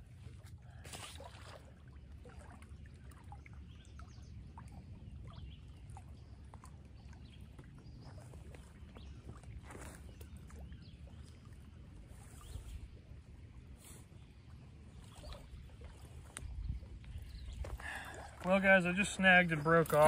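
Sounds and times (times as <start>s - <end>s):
fish splashing into water: 0.8s - 3.3s
wind rumbling on microphone: 7.2s - 18.4s.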